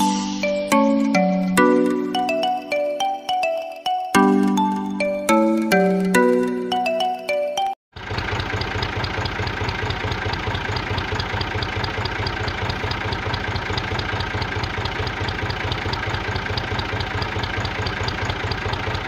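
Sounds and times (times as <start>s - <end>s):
tractor engine idling: 7.9s - 19.0s.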